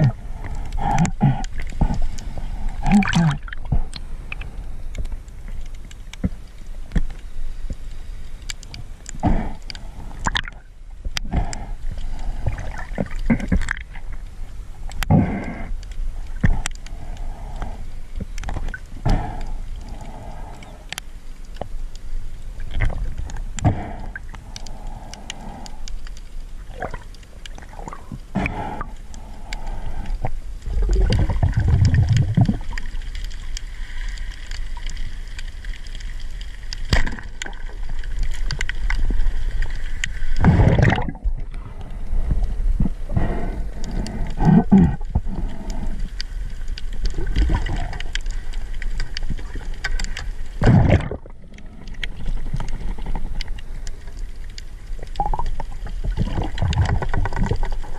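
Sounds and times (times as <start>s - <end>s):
moving water wash: 0.0s - 15.7s, 26.6s - 57.9s
underwater clicking crackle: 0.0s - 57.9s
underwater thuds and surges: 30.0s - 33.3s, 36.8s - 45.9s, 46.8s - 57.9s.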